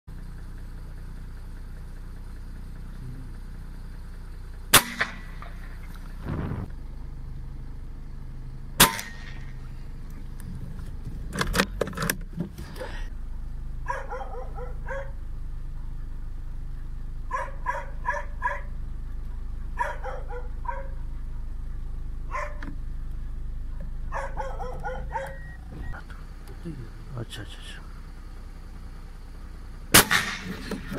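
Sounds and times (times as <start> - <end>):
rifle shots: 4.7 - 5.4, 8.8 - 9.4, 29.9 - 30.6
dog barking: 13.8 - 15.2, 17.3 - 18.8, 19.8 - 21.0, 22.3 - 22.7, 24.1 - 25.5.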